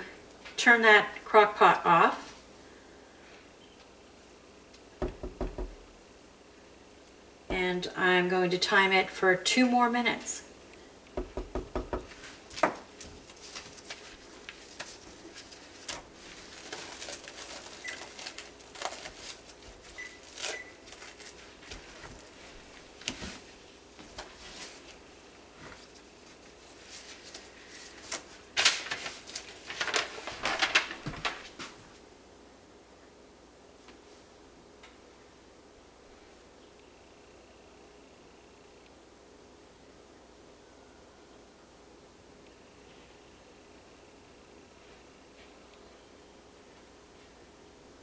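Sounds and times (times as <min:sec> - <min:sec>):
plastic cling wrap crinkling: 0:12.4 - 0:23.4, 0:25.7 - 0:31.8.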